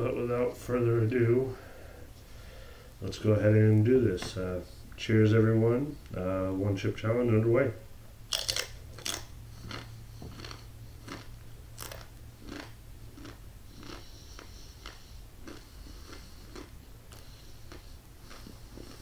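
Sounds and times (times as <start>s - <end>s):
steady low hum: 0.0s - 19.0s
chewing crunchy chip: 8.3s - 19.0s.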